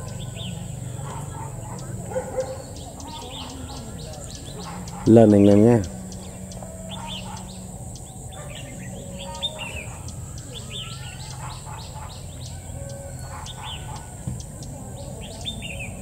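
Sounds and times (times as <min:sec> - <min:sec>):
bird chirping and whistling: 0:00.0 - 0:16.0.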